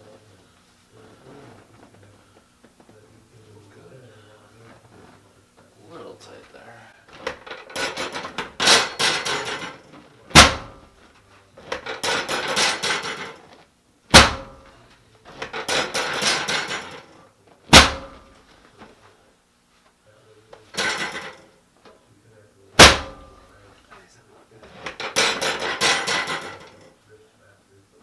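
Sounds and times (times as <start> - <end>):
drop table clacks: 7.1 - 10.9, 11.6 - 18.4, 20.6 - 21.5, 22.8 - 23.4, 24.7 - 27.0.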